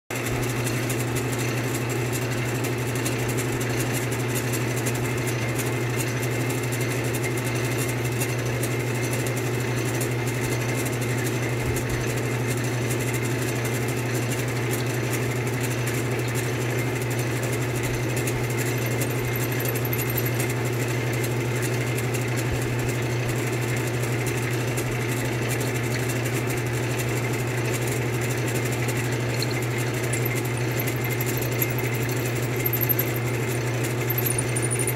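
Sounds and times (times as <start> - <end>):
wood lathe drilling into wood: 29.0 - 34.9.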